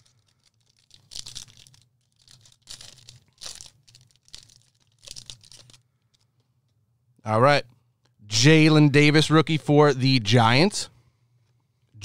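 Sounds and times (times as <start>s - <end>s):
foil wrapper tearing and crinkling: 0.0s - 6.2s.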